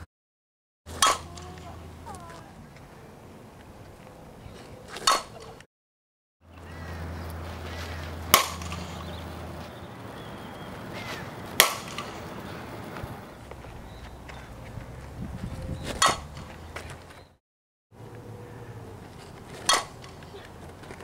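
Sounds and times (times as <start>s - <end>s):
bat cracking softball: 0.9s - 1.6s, 4.9s - 5.6s, 7.3s - 9.6s, 10.9s - 13.0s, 15.9s - 16.7s, 19.2s - 21.0s.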